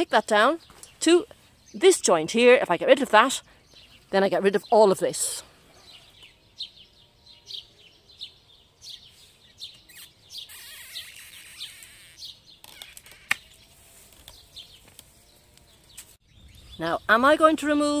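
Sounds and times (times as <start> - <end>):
songbirds chirping: 0.0 - 18.0
loppers snapping through stem: 12.6 - 16.1
rustling of branches: 12.6 - 18.0.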